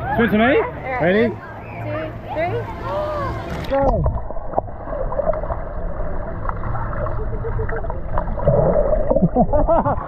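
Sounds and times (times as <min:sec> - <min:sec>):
underwater rumble and gurgling: 0:01.6 - 0:10.0
underwater clicks and bubbles: 0:03.5 - 0:09.5.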